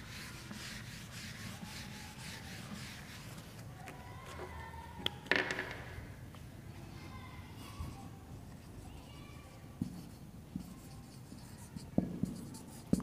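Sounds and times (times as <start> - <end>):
marker rubbing on whiteboard: 0.0 - 3.7, 8.5 - 13.0.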